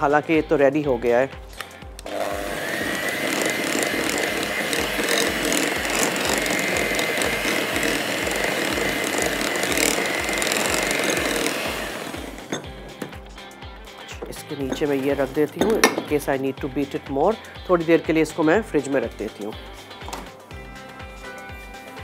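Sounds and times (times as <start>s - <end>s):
electric hand mixer whine: 2.0s - 13.2s.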